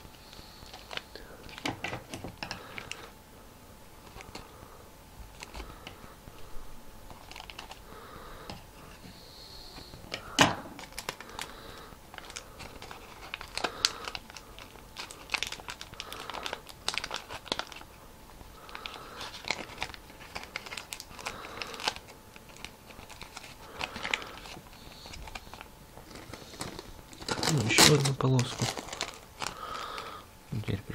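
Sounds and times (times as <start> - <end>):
tape and paper crinkling: 0.6 - 3.1, 5.3 - 6.0, 7.0 - 7.8, 9.8 - 30.1.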